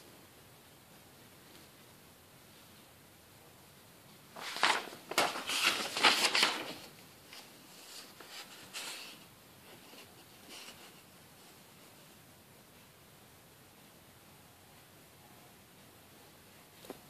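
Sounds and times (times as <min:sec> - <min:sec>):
paper rustling and crackling: 0:04.3 - 0:11.0.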